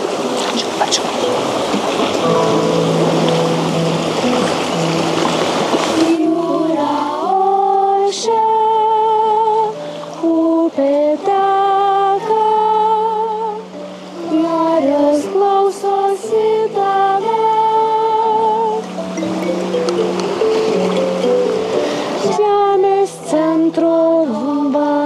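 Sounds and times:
low held note: 1.2 - 6.7
opera singing with vibrato: 5.9 - 19.0, 22.0 - 25.0
rushing water-like hiss: 18.9 - 22.4.

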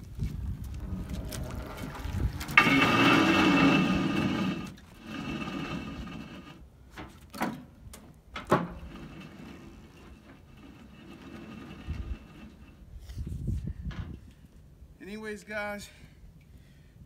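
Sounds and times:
steady low rumble: 0.0 - 6.4.

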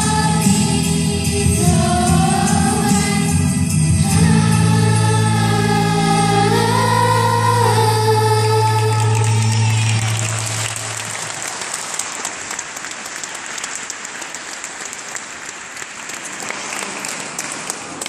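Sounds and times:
audience applauding: 8.8 - 18.0.

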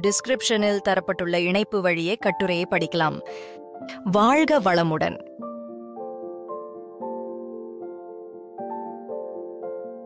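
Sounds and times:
soft piano chords: 5.3 - 10.0.

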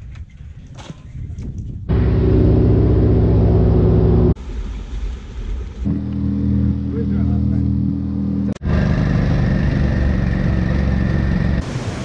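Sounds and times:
low rumble: 1.8 - 11.6
plane engine and propeller drone: 1.9 - 4.4, 5.6 - 12.0.

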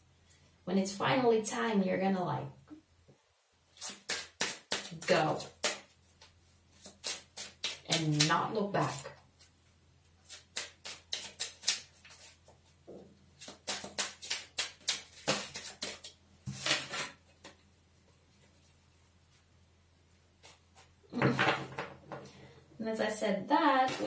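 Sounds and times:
cards being shuffled: 10.2 - 12.6, 13.4 - 17.6.

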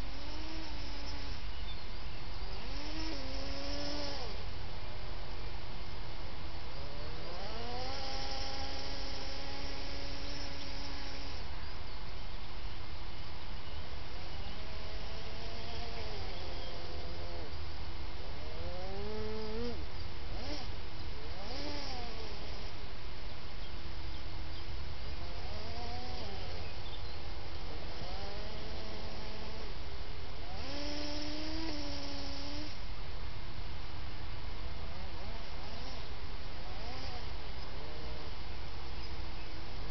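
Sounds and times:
electric motors whining: 0.0 - 1.8, 2.4 - 4.4, 6.8 - 11.5, 14.0 - 17.6, 18.4 - 22.8, 25.1 - 29.8, 30.4 - 32.8.

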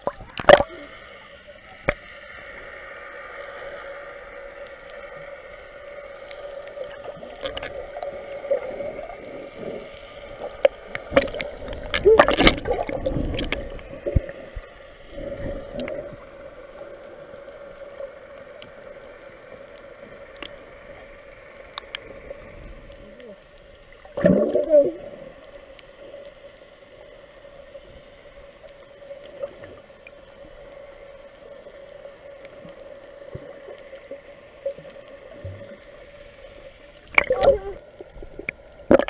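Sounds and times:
water gurgling underwater: 0.0 - 1.0, 6.6 - 16.8, 21.8 - 25.6, 37.0 - 39.0
steady hum: 0.0 - 39.0
bubbling burst: 11.1 - 13.6, 24.2 - 24.8.

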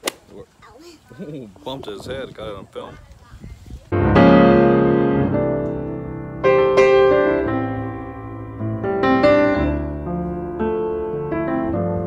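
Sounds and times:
solo piano music: 3.9 - 12.0.

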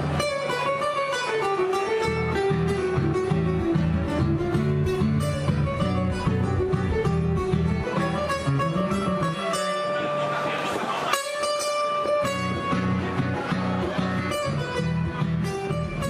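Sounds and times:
classical guitar duet: 0.0 - 16.0.

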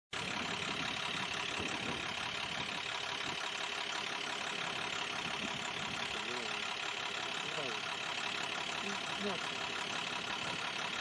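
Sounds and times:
fire truck engine idling: 0.2 - 11.0.

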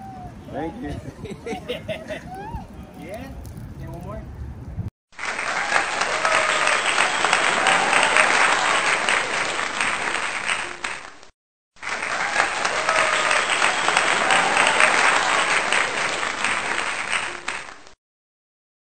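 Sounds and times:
crowd cheering: 5.2 - 11.1, 11.8 - 17.9
crowd applauding: 5.2 - 18.0.

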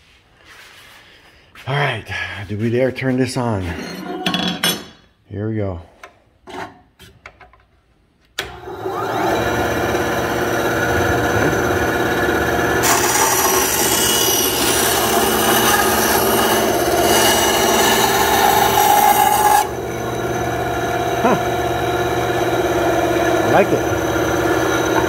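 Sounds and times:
band saw motor humming: 8.5 - 25.0
saw blade rasping through wood: 12.8 - 25.0.

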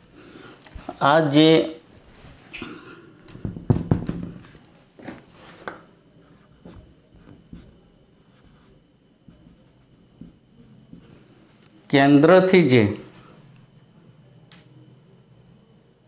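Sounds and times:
marker writing on whiteboard: 6.2 - 11.2.

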